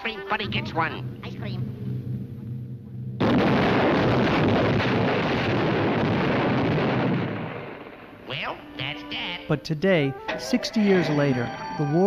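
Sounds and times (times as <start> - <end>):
cartoon explosions rumbling: 0.3 - 8.8.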